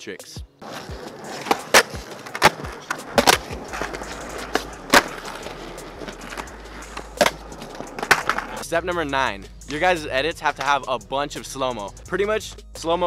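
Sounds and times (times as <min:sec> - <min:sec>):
skateboard clacking on ground: 0:00.6 - 0:08.6
skateboard wheels rolling on concrete: 0:00.6 - 0:08.6.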